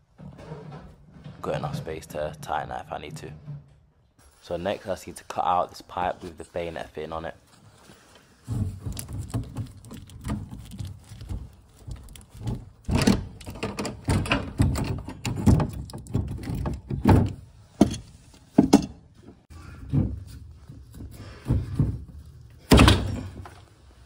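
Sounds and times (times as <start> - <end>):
hand tool knocking and scraping pipe: 8.4 - 23.7.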